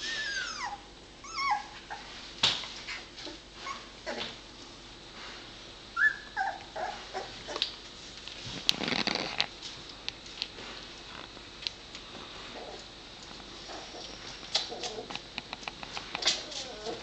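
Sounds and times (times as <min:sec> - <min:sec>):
puppies squeaking and whimpering: 0:00.0 - 0:02.1, 0:02.9 - 0:04.3, 0:06.0 - 0:07.6, 0:13.6 - 0:15.2, 0:16.2 - 0:17.0
rustle: 0:12.0 - 0:17.0.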